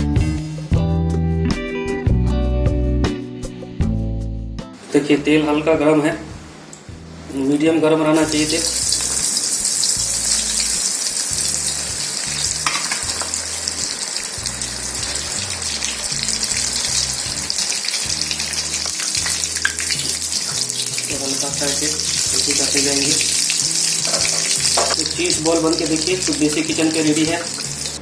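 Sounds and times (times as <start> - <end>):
oil sizzling while deep-frying: 8.2 - 28.0.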